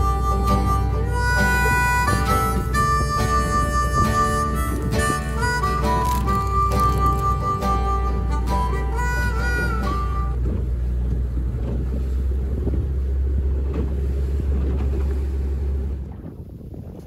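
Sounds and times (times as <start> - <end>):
flute-like background music: 0.0 - 11.0
boat engine droning: 0.0 - 16.5
water and hull noise: 0.0 - 17.0.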